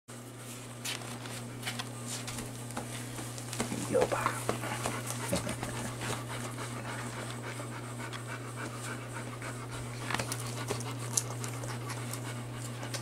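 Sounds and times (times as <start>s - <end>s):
steady low hum: 0.1s - 13.0s
dog panting: 3.7s - 13.0s.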